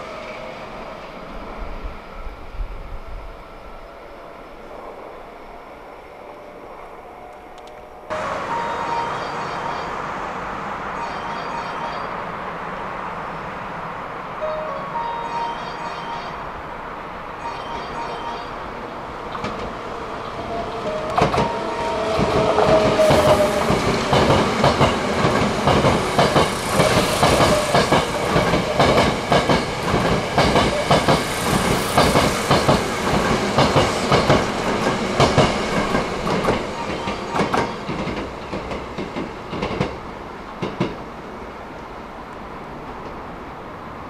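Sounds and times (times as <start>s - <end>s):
brief tone: 7.2s - 10.0s, 11.0s - 12.3s, 14.4s - 16.5s, 17.4s - 18.7s, 36.8s - 37.9s
train wheels clicking over rail joints: 20.8s - 41.0s.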